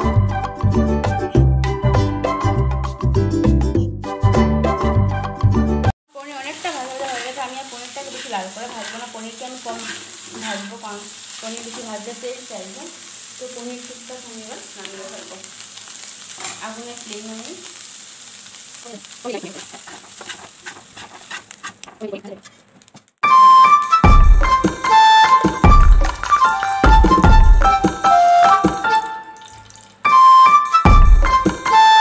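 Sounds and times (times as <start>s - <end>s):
cheese cubes sizzling in oil: 6.1s - 23.2s, 24.4s - 30.2s
metal spatula scraping pan: 7.0s - 11.0s, 19.4s - 22.7s.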